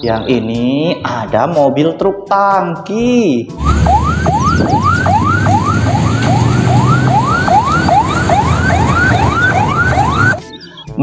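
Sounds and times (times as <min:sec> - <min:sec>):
truck engine running: 0:03.6 - 0:10.4
siren yelping: 0:03.6 - 0:10.6.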